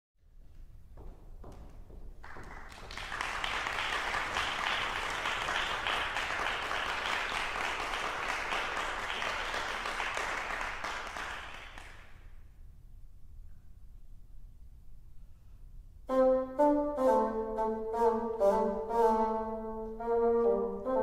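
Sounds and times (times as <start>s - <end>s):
audience applauding: 2.2s - 12.3s.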